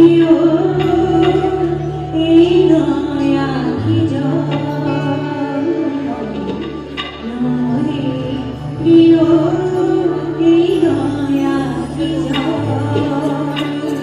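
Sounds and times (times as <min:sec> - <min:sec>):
low musical accompaniment: 0:00.0 - 0:14.0.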